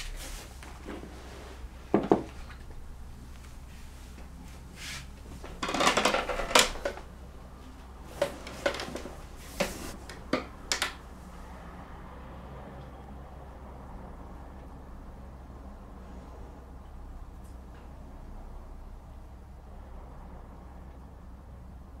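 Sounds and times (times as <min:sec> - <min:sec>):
rustling and handling noise: 0:00.0 - 0:10.5.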